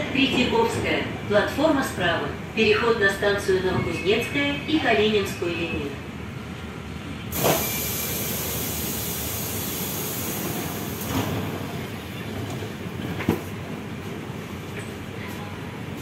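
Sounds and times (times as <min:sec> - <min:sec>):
compressed air hiss of train doors: 0:07.3 - 0:11.6.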